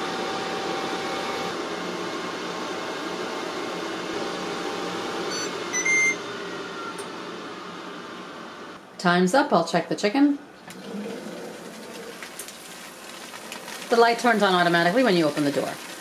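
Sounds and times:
oven convection fan running: 0.0 - 9.5, 10.3 - 16.0
oven timer beeping: 5.3 - 7.2.

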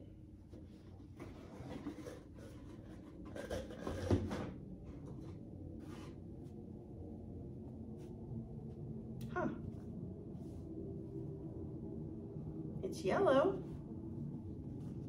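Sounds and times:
box rubbing and scraping: 1.0 - 4.4.

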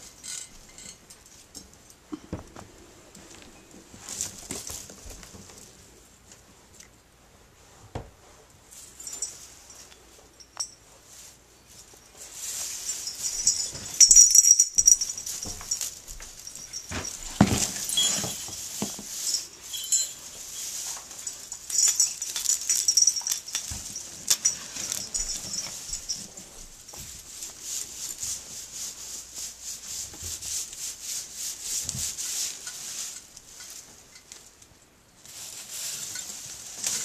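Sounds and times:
plastic sheeting crinkling: 35.2 - 37.0.

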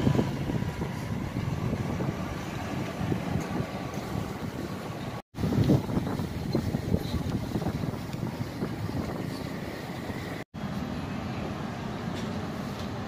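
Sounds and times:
low street rumble: 0.0 - 13.0.

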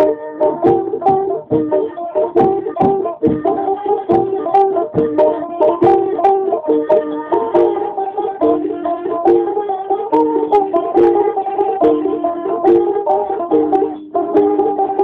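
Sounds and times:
plucked lutes: 0.0 - 15.0
reed pipe melody: 0.0 - 15.0.

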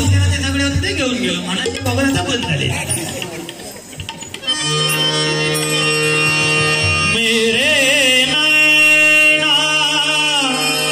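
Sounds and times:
harmonium chord: 4.4 - 10.9
man singing: 6.9 - 10.9.

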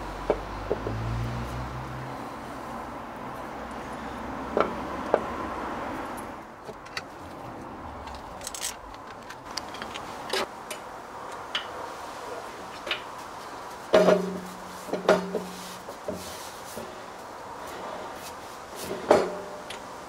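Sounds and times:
metal clicks and clinks: 8.0 - 10.8.

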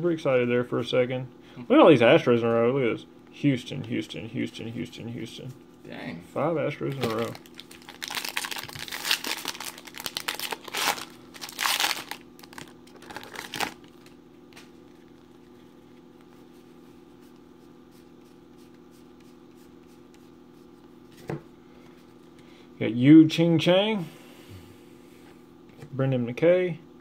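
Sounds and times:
faint steady hum: 0.0 - 27.0
plastic wrapper tearing and crinkling: 6.8 - 14.2.

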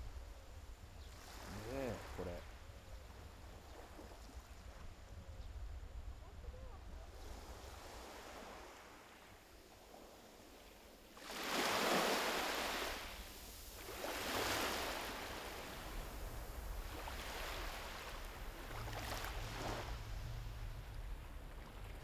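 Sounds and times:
wind rumble on microphone: 0.0 - 8.8, 13.2 - 22.0
waves washing on shore: 7.1 - 22.0.

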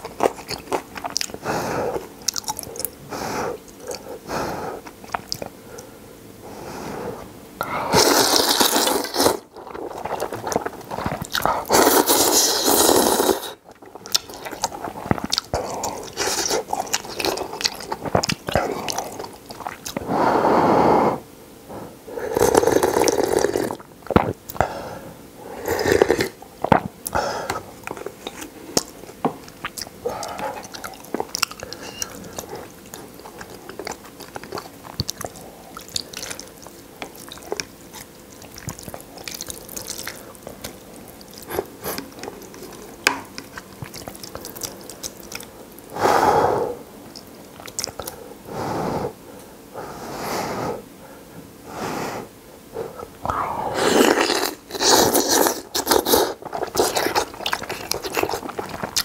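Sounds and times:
chewing and wet mouth smacks: 0.0 - 1.4, 2.2 - 2.9, 4.9 - 5.5, 13.7 - 20.0, 26.6 - 45.9, 47.1 - 48.2, 54.0 - 59.0
loud slurping of broth: 7.9 - 9.4, 11.7 - 13.6, 22.3 - 23.8, 53.3 - 57.2.

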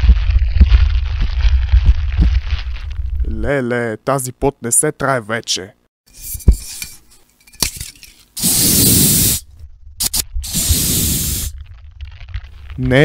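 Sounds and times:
loud hissing bursts: 8.4 - 11.5.

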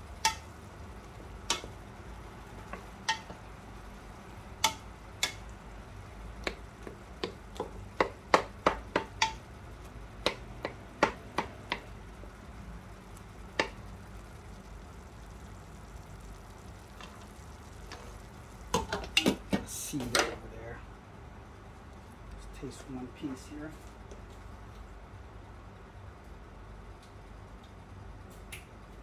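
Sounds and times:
diced apples being stirred: 0.0 - 12.1, 16.1 - 20.8.

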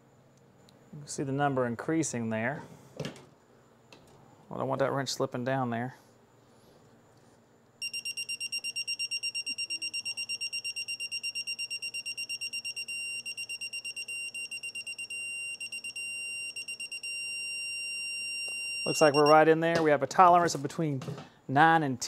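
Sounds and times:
rapid high beeps: 7.8 - 19.4.

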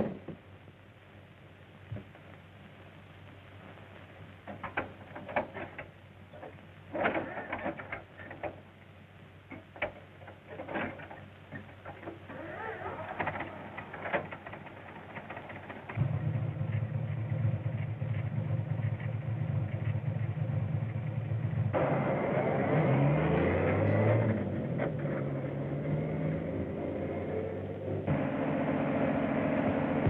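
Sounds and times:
old car engine running: 9.8 - 22.1.

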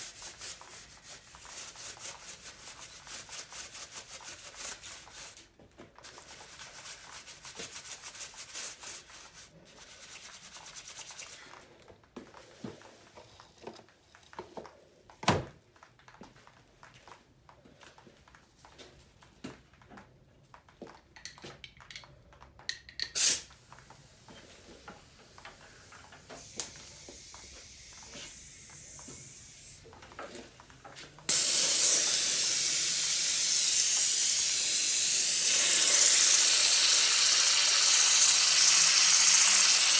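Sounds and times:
brush scrubbing metal: 0.0 - 5.4, 6.1 - 11.4
air spray gun hissing: 23.2 - 23.5, 25.0 - 29.8, 31.3 - 39.9.

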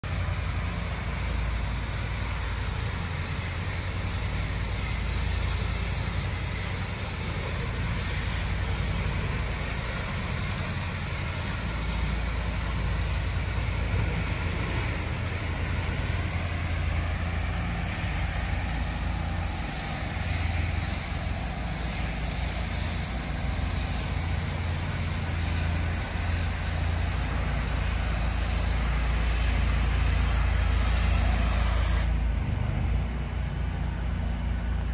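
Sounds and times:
pressure washer engine rumble: 0.0 - 34.9
water spray hiss: 0.0 - 34.9.

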